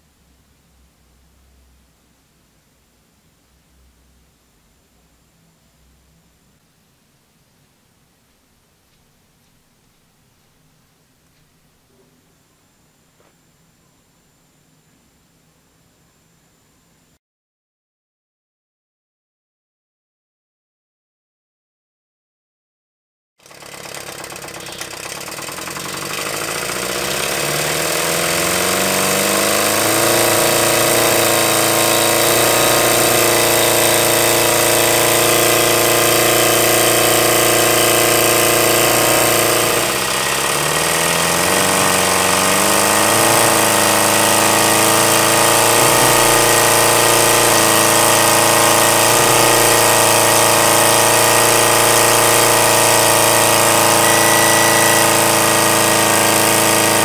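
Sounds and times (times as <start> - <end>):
model steam engine running: 23.4 - 57.0.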